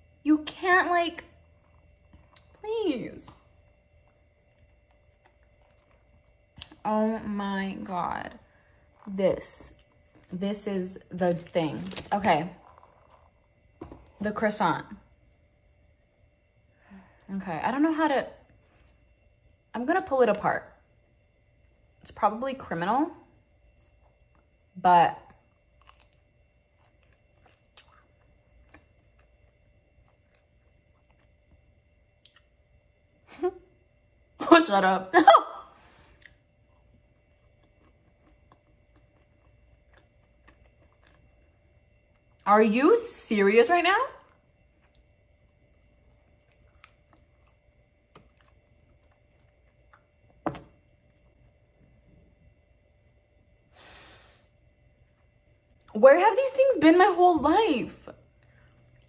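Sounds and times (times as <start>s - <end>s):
faint chewing: 1.4s - 2.7s, 3.3s - 6.8s, 11.2s - 14.2s, 25.4s - 32.5s, 36.0s - 42.4s, 44.2s - 50.4s, 58.1s - 59.0s.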